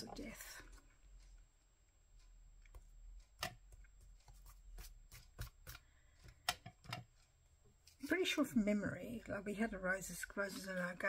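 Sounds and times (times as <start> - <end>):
light clicks and taps: 2.2 - 9.4
soft paper rubbing: 4.0 - 5.9.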